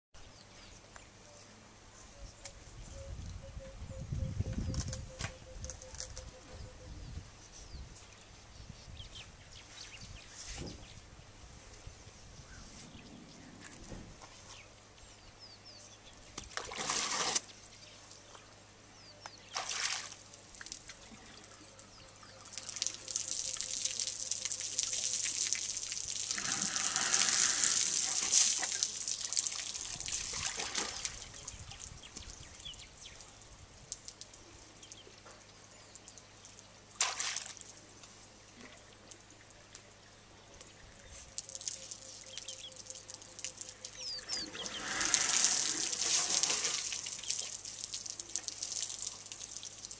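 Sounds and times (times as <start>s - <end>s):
water pouring and splashing: 16.5s - 17.5s, 19.5s - 21.4s, 22.5s - 32.1s, 37.0s - 37.8s, 41.3s - 49.9s
elephant trunk drawing water: 16.6s - 17.5s, 22.6s - 31.2s, 44.4s - 49.5s.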